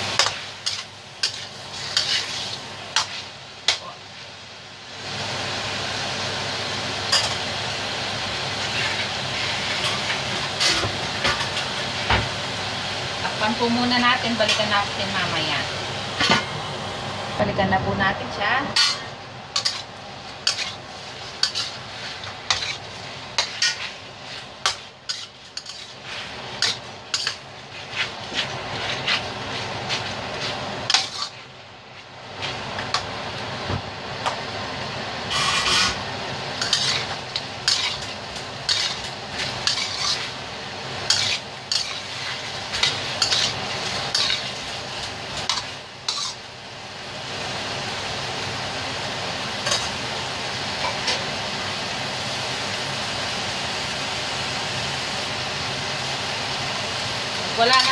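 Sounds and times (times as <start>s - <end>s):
metal spoon scraping a wok: 0.0s - 3.9s, 18.8s - 31.5s, 35.3s - 36.0s, 36.6s - 46.4s, 49.6s - 50.0s
frying sizzle: 0.0s - 57.9s.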